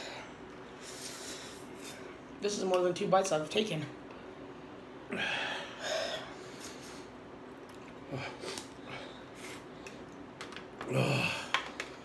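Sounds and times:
man breathing noisily: 0:05.1 - 0:07.2.

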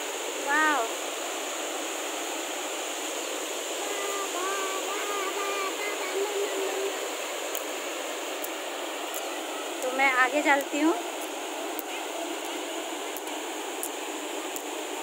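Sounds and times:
water rushing over rocks: 0:00.0 - 0:15.0
faint distant voice: 0:11.6 - 0:13.0.

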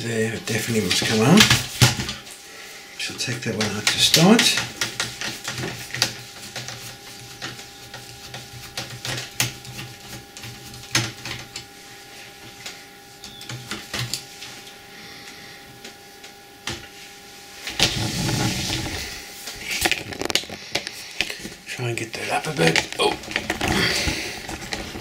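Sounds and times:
faint steady hum: 0:00.0 - 0:25.0
rustling handling noise: 0:15.8 - 0:25.0.

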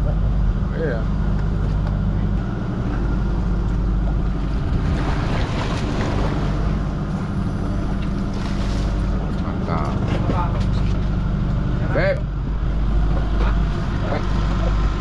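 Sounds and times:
boat machinery droning: 0:00.0 - 0:15.0
fish splashing in water: 0:04.1 - 0:09.2.

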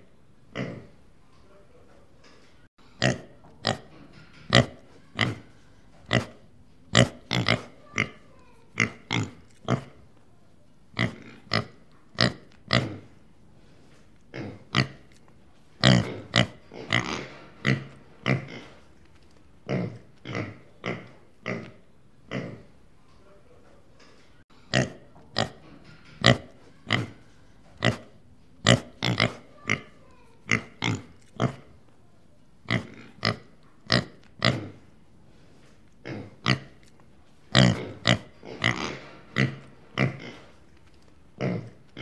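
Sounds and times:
pig grunting: 0:00.5 - 0:01.0, 0:03.0 - 0:05.5, 0:06.1 - 0:10.0, 0:11.0 - 0:13.1, 0:14.3 - 0:15.0, 0:15.8 - 0:18.8, 0:27.8 - 0:31.7, 0:32.7 - 0:34.8, 0:36.0 - 0:36.7, 0:37.5 - 0:40.6, 0:41.4 - 0:42.0.

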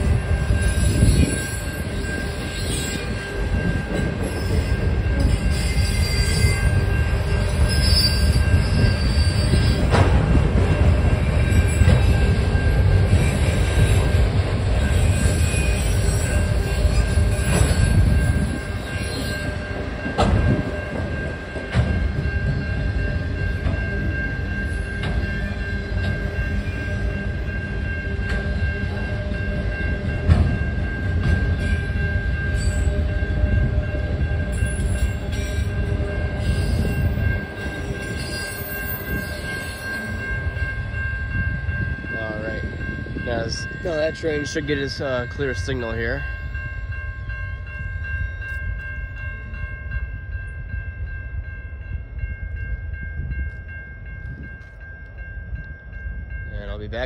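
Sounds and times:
wheels rumbling on rail: 0:00.0 - 0:57.0
high-pitched wheel squeal: 0:00.6 - 0:03.3, 0:04.2 - 0:06.7, 0:07.4 - 0:09.8.

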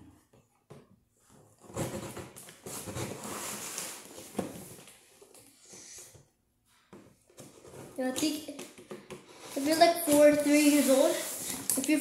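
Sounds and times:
cardboard rustling and scraping: 0:01.2 - 0:05.2, 0:09.3 - 0:12.0.

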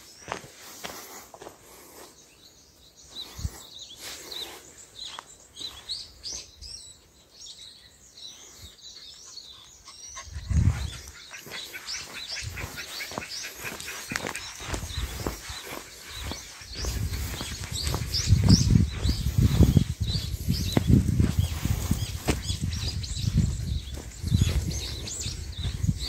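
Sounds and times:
footsteps crunching on gravel: 0:00.0 - 0:02.1, 0:10.6 - 0:26.0
small birds chirping: 0:00.0 - 0:26.0.

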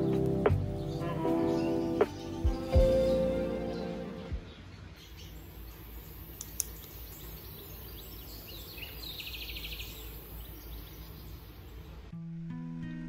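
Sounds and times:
pen clicks: 0:06.4 - 0:07.0.

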